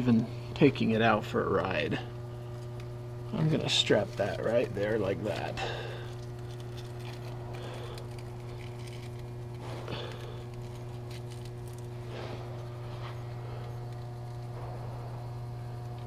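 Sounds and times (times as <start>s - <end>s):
steady low hum: 0.0s - 16.0s
velcro and wire rustling: 3.7s - 14.6s.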